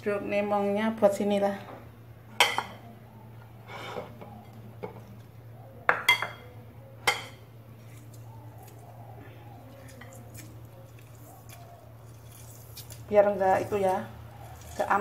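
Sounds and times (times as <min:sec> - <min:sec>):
faint low hum: 0:00.0 - 0:15.0
ceramic plates clinking: 0:05.9 - 0:07.4.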